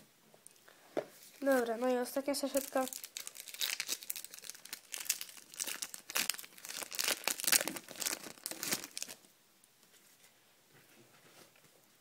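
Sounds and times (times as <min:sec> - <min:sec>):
foil wrapper crinkling and tearing: 0:01.3 - 0:09.3.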